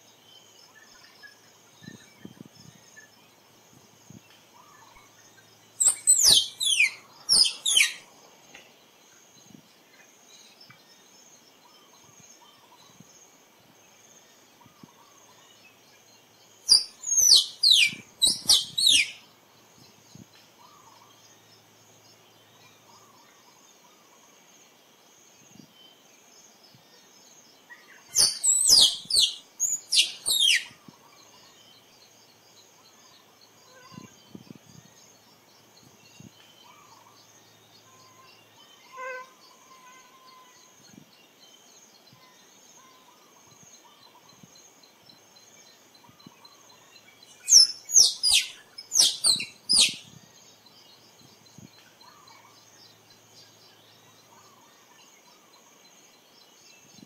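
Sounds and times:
faint insect drone: 0.0s - 57.0s
squirrel chirping: 5.8s - 8.0s, 16.7s - 19.2s, 28.1s - 30.8s, 47.3s - 50.2s.

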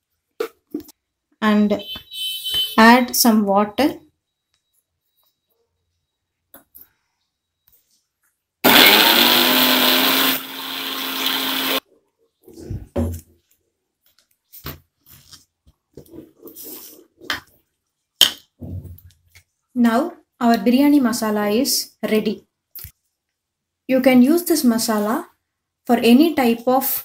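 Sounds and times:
mixer grinder motor running: 8.6s - 11.8s.

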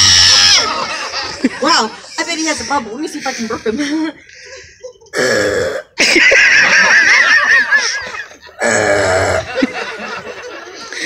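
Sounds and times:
comedy burps: 5.1s - 6.0s, 8.6s - 9.6s.

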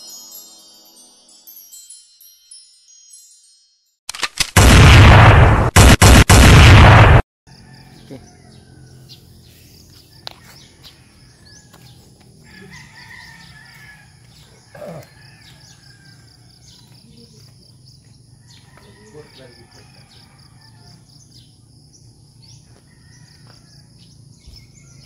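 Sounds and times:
loud rushing burst of noise: 4.6s - 7.2s
rooster crowing: 7.5s - 9.4s, 10.1s - 16.9s, 18.4s - 21.4s, 22.4s - 25.0s
small birds chirping: 7.9s - 12.6s, 16.6s - 19.4s, 20.2s - 25.0s.

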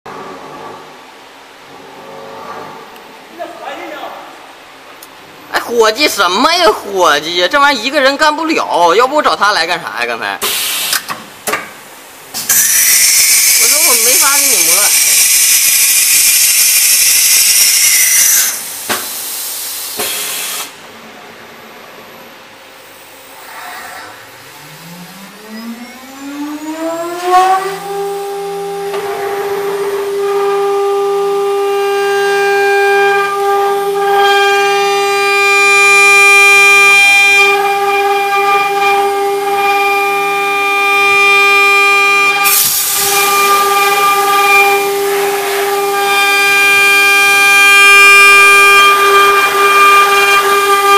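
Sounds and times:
compressed air hissing: 10.4s - 11.2s, 12.4s - 20.8s, 42.4s - 45.8s
router spindle whining: 23.9s - 34.5s.

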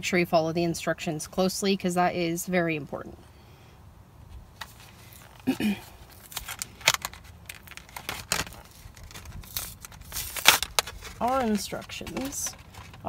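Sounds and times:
blister pack tearing and crinkling: 4.6s - 13.0s
plastic clicks: 6.1s - 13.0s.

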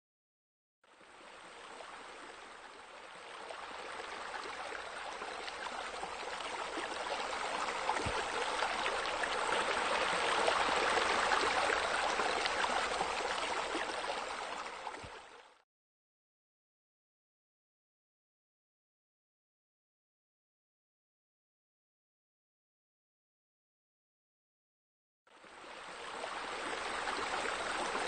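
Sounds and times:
water splashing into a pool: 6.5s - 14.1s.

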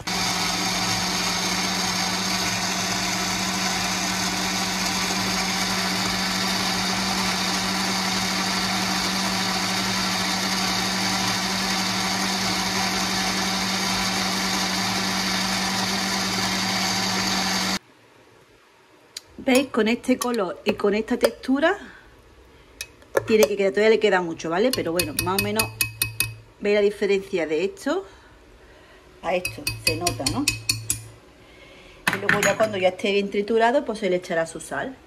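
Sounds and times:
blender running: 0.0s - 17.8s.

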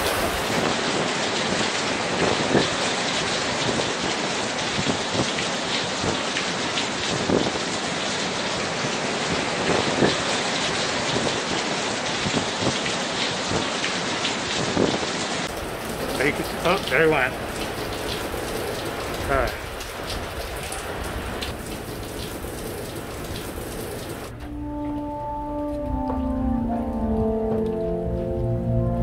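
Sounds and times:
heavy rain: 0.0s - 24.4s.

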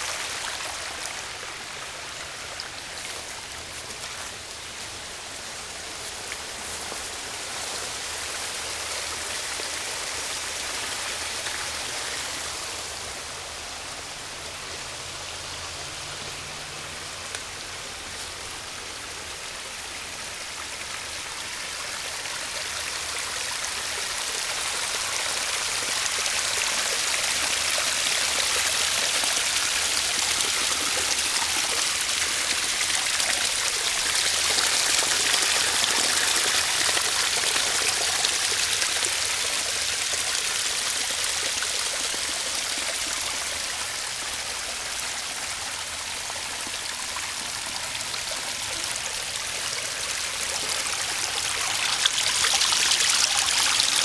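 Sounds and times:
sewage splashing and running: 50.0s - 54.0s.

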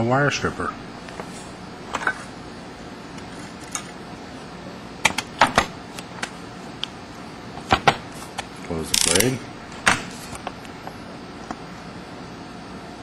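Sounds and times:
wire stripper metallic clicks: 8.9s - 9.4s.

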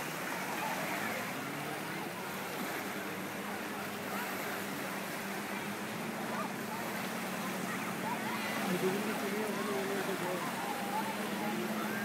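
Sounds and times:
distant motorboat engine: 0.0s - 12.0s
rushing water: 0.0s - 12.0s
small waves lapping: 0.0s - 12.0s.

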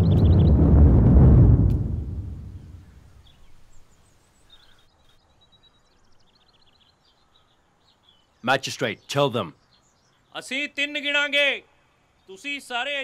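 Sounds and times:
deep rumbling music swell: 0.0s - 2.9s
small birds chirping: 2.8s - 13.0s.

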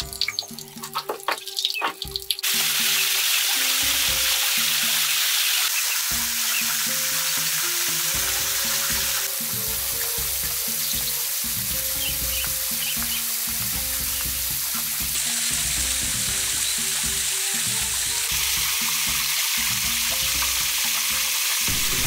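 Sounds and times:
background music: 0.0s - 22.0s
food sizzling in a pan: 1.4s - 22.0s
birds chirping: 5.7s - 7.4s, 10.0s - 14.4s.

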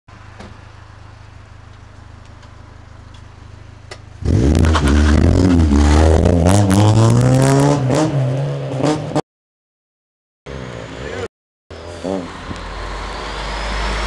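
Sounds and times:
car engine idling: 0.1s - 4.2s
car exhaust revving: 3.6s - 9.1s.

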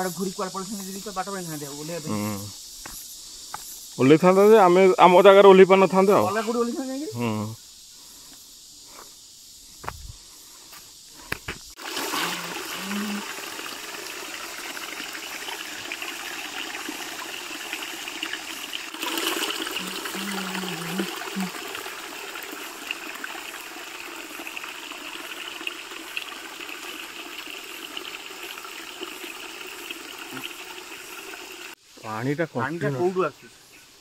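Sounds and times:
spring water trickling over rocks: 10.4s - 31.8s.

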